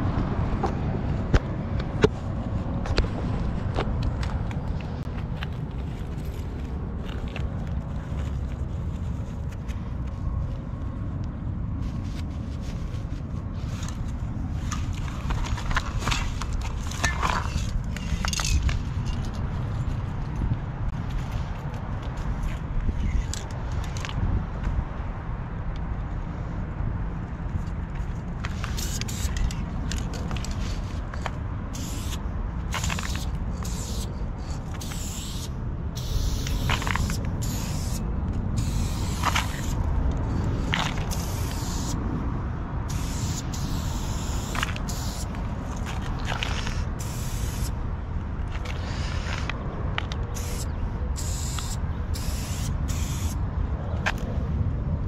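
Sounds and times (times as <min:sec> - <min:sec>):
spray paint can hissing: 0:28.5 - 0:30.0, 0:31.7 - 0:39.8, 0:40.8 - 0:42.0, 0:42.9 - 0:45.4, 0:46.4 - 0:47.8, 0:50.3 - 0:53.4.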